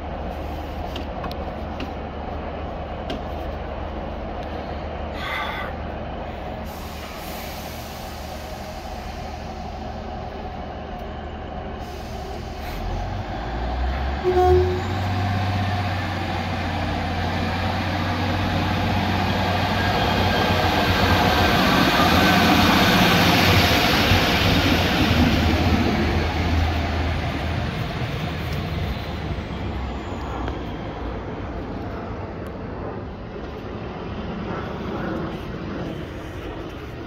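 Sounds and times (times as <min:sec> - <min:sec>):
diesel railcar engine drone: 0:00.0 - 0:37.0
train wheel noise: 0:00.0 - 0:37.0
train horn toot: 0:14.2 - 0:15.2.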